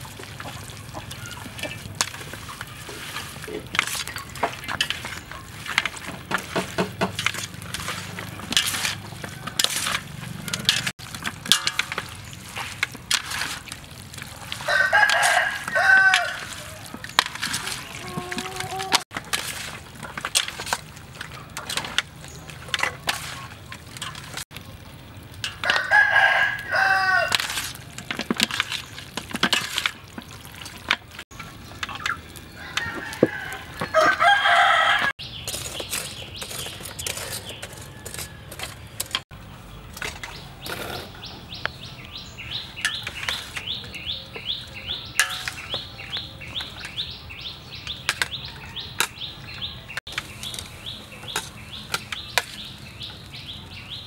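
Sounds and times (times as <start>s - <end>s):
rooster crowing: 14.6s - 16.8s, 25.6s - 27.4s, 32.5s - 35.1s.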